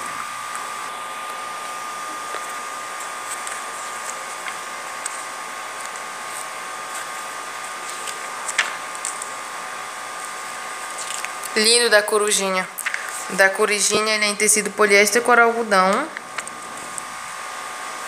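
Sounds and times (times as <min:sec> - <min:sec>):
paper pages turning: 0:00.5 - 0:09.4, 0:10.4 - 0:11.4, 0:12.8 - 0:14.0.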